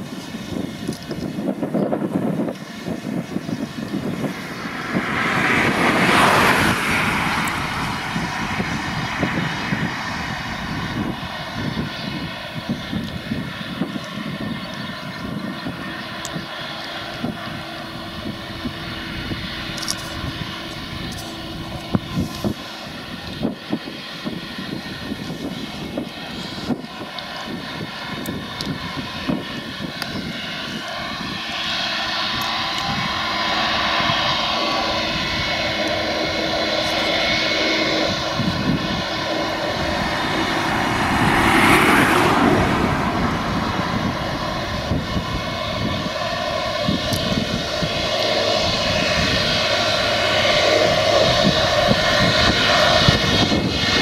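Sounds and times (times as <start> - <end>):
mower whirring: 0.0 - 54.0
rush of noise: 0.0 - 54.0
tractor engine drone: 0.0 - 54.0.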